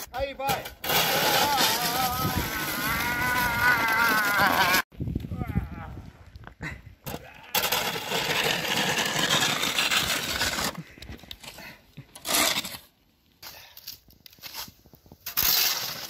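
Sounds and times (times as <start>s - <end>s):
metal snow shovel scraping pavement: 0.4s - 4.8s, 7.5s - 12.9s, 14.4s - 16.0s.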